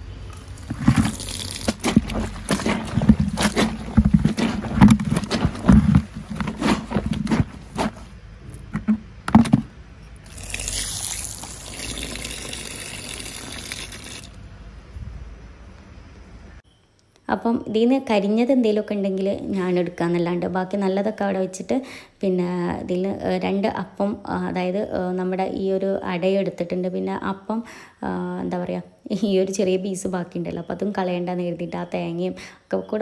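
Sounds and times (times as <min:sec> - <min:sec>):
knocks and clatter of handling: 0:00.4 - 0:09.7
water running: 0:10.3 - 0:14.4.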